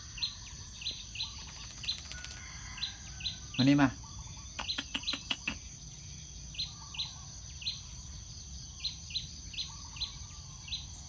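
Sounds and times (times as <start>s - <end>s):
bird chirping: 0.0s - 11.0s
insects droning: 0.0s - 11.0s
sharp clicks: 4.6s - 5.6s.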